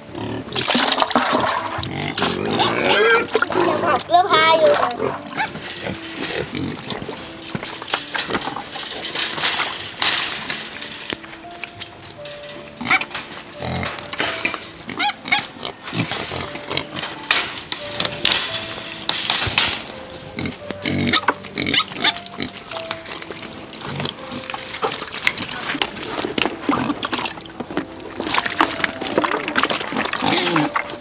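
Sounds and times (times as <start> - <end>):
piglets squealing and grunting: 0.0 - 7.2, 12.7 - 14.0, 14.8 - 17.1, 20.4 - 22.6, 29.3 - 31.0.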